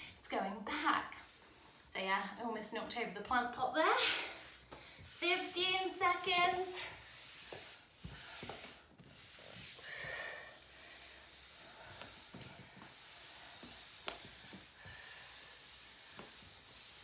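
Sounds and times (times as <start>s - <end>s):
sliders swishing on wooden floor: 4.4s - 9.8s, 10.5s - 17.0s.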